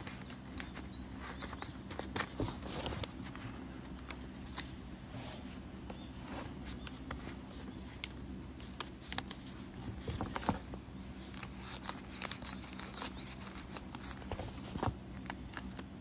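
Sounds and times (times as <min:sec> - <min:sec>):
paper and plastic rustling: 0:00.0 - 0:15.9
faint steady hum: 0:00.0 - 0:16.0.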